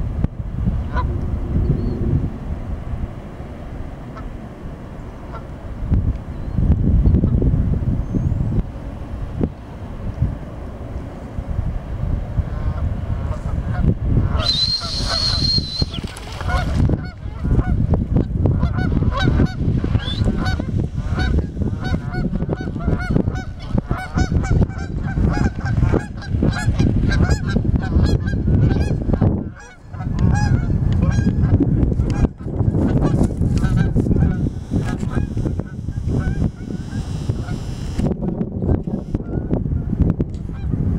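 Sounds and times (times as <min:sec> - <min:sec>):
heavy low rumble: 0:00.0 - 0:14.4
geese honking: 0:00.9 - 0:01.2, 0:05.2 - 0:05.5, 0:12.5 - 0:17.8, 0:18.6 - 0:31.4, 0:33.0 - 0:37.8
high steady whistle: 0:14.4 - 0:16.1.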